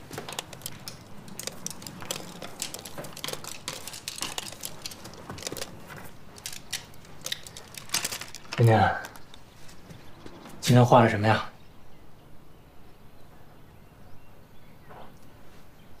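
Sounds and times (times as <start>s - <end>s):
objects being rummaged through: 0.0s - 10.4s.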